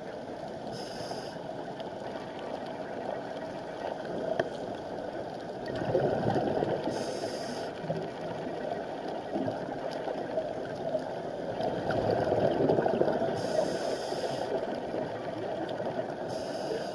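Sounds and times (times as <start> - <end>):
underwater bubbles gurgling: 0.0 - 16.9
regulator hiss: 0.7 - 1.4, 6.9 - 7.8, 13.4 - 14.6, 16.2 - 16.9.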